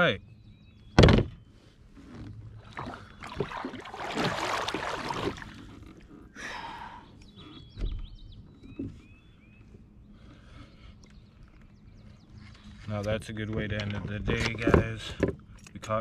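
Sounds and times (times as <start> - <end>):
birds chirping faintly: 0.0 - 16.0
hands splashing in water: 2.6 - 5.7.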